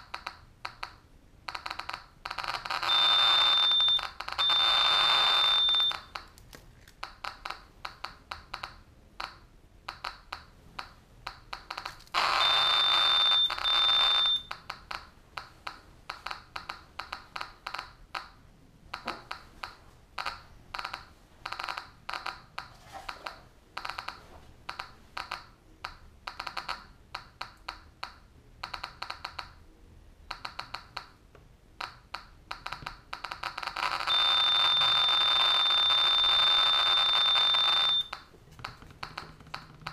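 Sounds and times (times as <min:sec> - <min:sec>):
geiger counter clicking: 0:00.0 - 0:29.6, 0:30.3 - 0:31.2, 0:31.8 - 0:39.9
high warning tone: 0:02.8 - 0:06.2, 0:11.7 - 0:14.5, 0:33.8 - 0:38.2.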